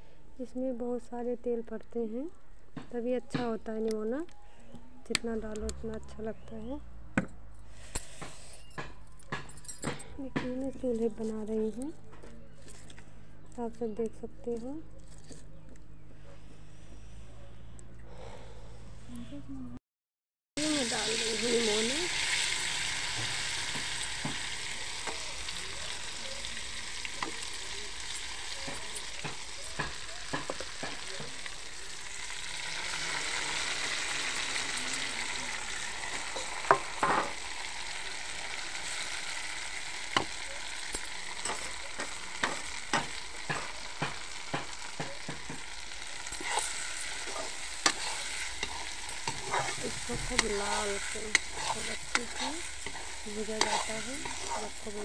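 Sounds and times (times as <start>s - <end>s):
paste sizzling in hot oil: 20.6s - 55.0s
metal spatula scraping a wok: 38.7s - 55.0s.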